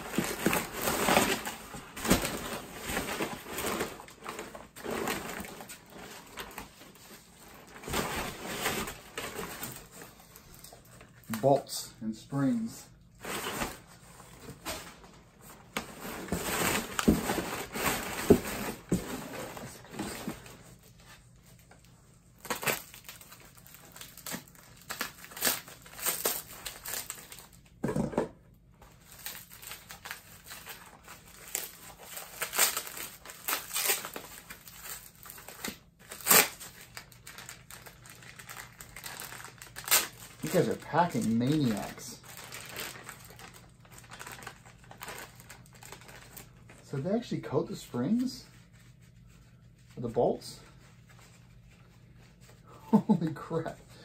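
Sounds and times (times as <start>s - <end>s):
packing material crinkling: 12.3s - 27.8s, 28.9s - 53.8s.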